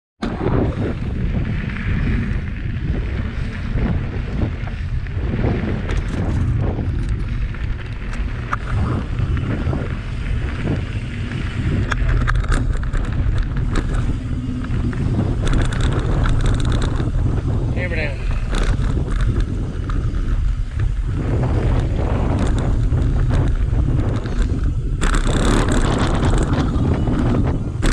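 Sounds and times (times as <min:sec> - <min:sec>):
bike tyres rolling on gravel: 0:00.2 - 0:27.9
wind buffeting microphone: 0:00.2 - 0:27.9
clicks and rattles: 0:05.8 - 0:21.0, 0:21.7 - 0:27.9.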